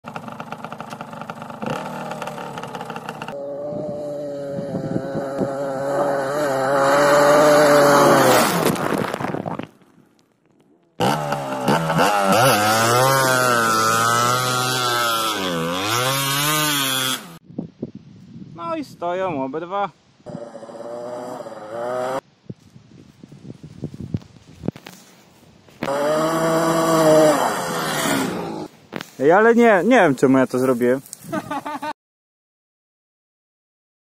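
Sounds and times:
two-stroke motorcycle engine revving: 0.0s - 8.7s, 11.0s - 17.4s, 20.3s - 22.2s, 25.8s - 28.7s.

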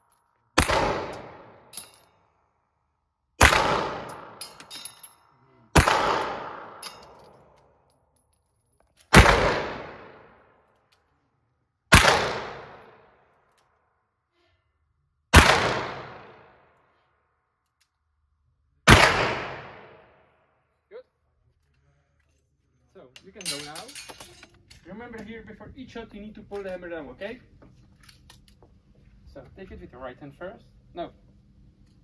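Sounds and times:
handgun shots: 0.6s - 1.4s, 3.4s - 4.4s, 5.8s - 6.8s
gunshot echo indoors: 0.6s - 1.7s, 3.4s - 4.4s, 5.8s - 6.8s, 9.1s - 10.5s, 11.9s - 13.2s, 15.3s - 16.7s, 18.9s - 20.3s.

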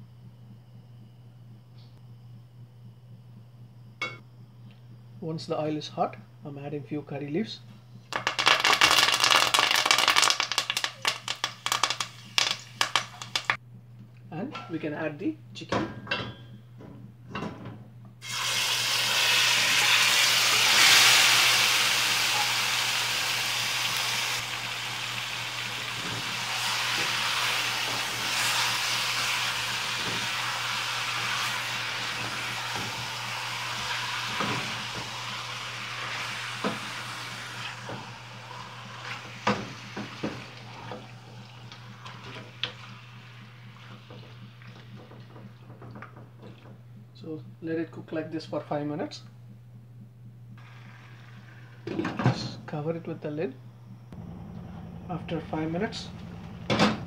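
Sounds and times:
steady low hum: 0.0s - 57.0s
chicken sizzling in hot oil: 8.2s - 13.6s, 18.2s - 44.1s.

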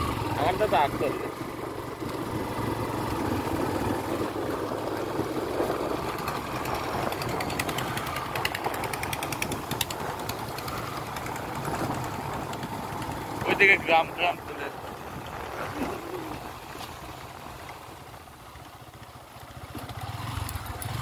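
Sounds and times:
motorcycle engine cruising: 0.0s - 21.0s
road noise: 0.0s - 21.0s
wind noise: 3.4s - 13.2s, 14.1s - 17.5s.

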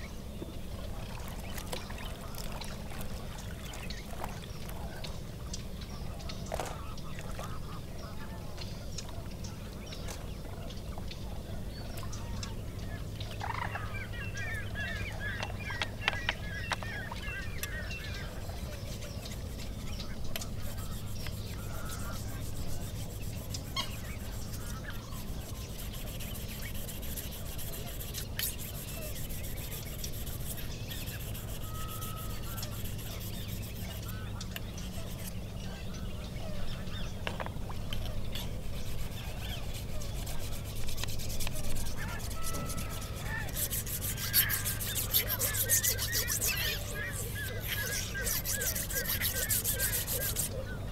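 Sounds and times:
bird calling in fast notes: 13.4s - 35.3s, 38.7s - 50.8s
pump engine humming: 37.6s - 50.5s.

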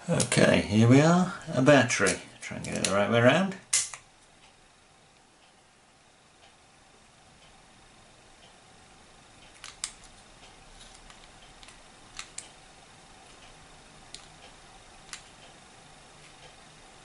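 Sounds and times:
faint clock ticking: 4.0s - 17.0s
small plastic and metal clicks: 9.5s - 10.2s.

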